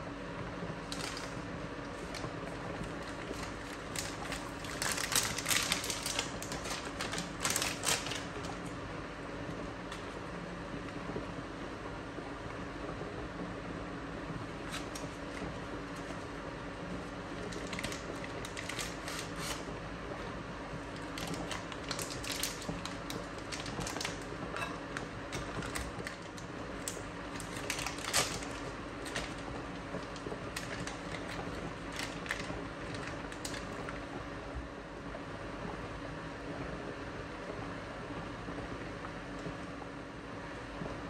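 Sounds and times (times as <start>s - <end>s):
induction cooktop hum: 0.0s - 41.0s
foil wrapper crinkling: 0.8s - 8.8s, 14.6s - 16.3s, 17.0s - 19.7s, 20.9s - 34.0s.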